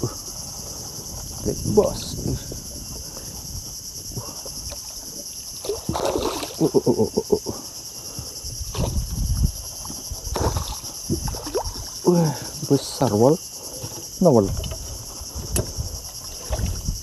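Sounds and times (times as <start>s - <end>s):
insect chirring: 0.0s - 17.0s
fish thrashing and splashing: 4.4s - 6.9s, 8.7s - 12.1s.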